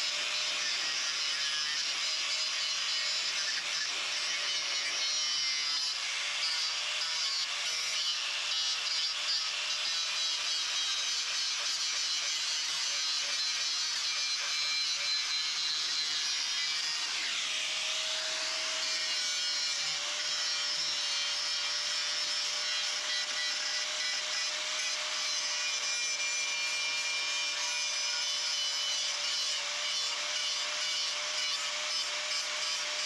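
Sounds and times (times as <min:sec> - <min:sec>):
power tool grinding sheet steel: 0:00.0 - 0:33.0.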